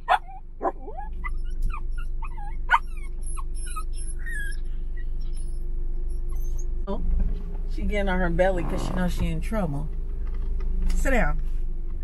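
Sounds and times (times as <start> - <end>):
puppy whining and yipping: 0.0 - 6.9
car cabin hum: 6.9 - 12.0.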